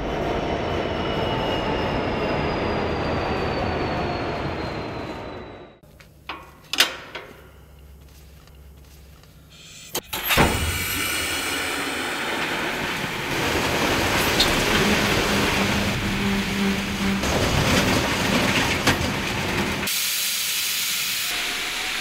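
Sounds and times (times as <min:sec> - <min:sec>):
train rumbling: 0:00.0 - 0:06.6, 0:07.2 - 0:19.9
wheel squeal: 0:00.9 - 0:05.8.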